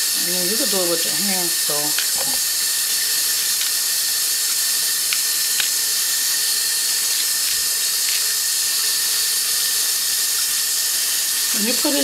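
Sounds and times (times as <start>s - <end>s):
steady hiss: 0.0s - 12.0s
plantain skin peeling clicks: 1.9s - 8.9s.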